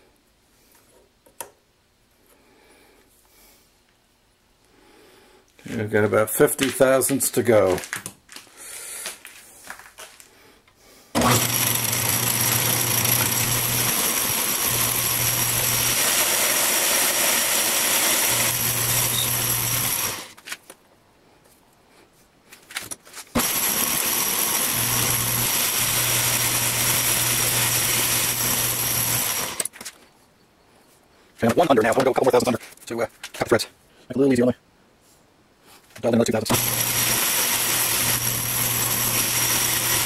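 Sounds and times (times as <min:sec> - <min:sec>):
metal lathe cutting: 0:11.2 - 0:20.3, 0:23.4 - 0:29.7, 0:36.5 - 0:40.0.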